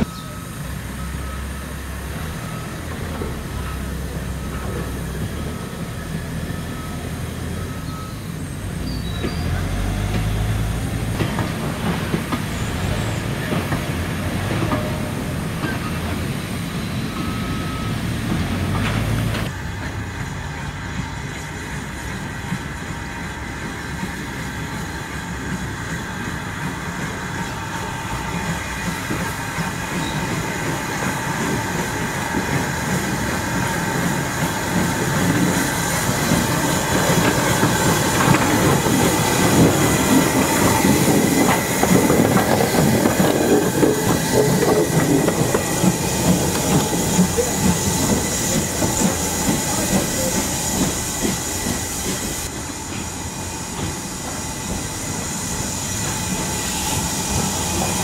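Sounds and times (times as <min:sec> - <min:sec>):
train wheels clattering over rail joints: 0:11.1 - 0:16.3, 0:18.2 - 0:22.8, 0:23.6 - 0:58.0.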